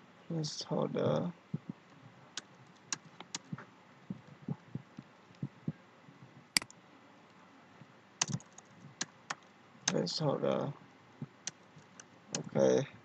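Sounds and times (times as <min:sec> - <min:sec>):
keyboard and mouse clicks: 0:02.4 - 0:05.5, 0:06.6 - 0:06.8, 0:08.2 - 0:10.1, 0:11.2 - 0:12.6.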